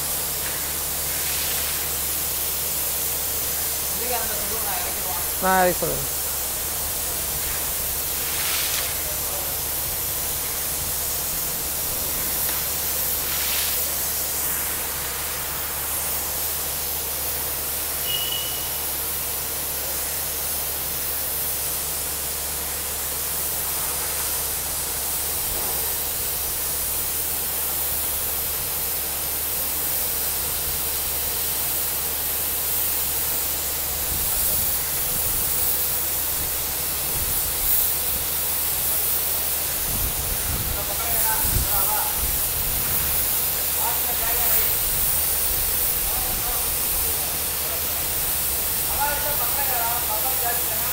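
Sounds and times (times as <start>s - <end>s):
compressed air blowing water: 0.0s - 17.1s, 33.2s - 50.8s.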